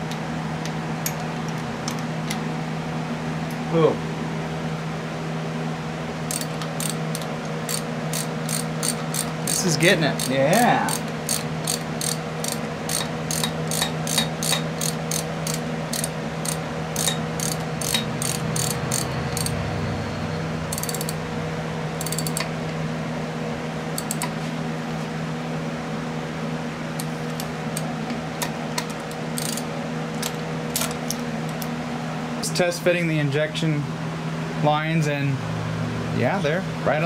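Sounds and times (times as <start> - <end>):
steady hum: 0.0 - 37.0
ratchet wrench clicking: 6.3 - 19.6, 20.7 - 21.2, 22.0 - 22.5, 24.0 - 24.3, 28.8 - 30.9.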